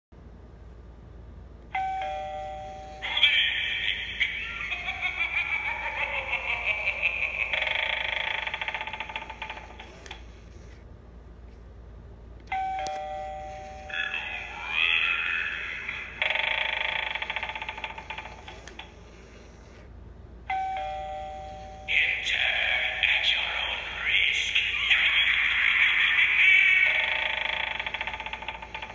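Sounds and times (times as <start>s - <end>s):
electronic ding-dong doorbell chime: 1.8s - 3.0s, 12.5s - 13.9s, 20.5s - 21.9s
recorded voice from small speaker: 2.8s - 7.5s, 13.9s - 16.3s, 21.9s - 27.4s
two-note falling doorbell chime: 20.5s - 21.9s.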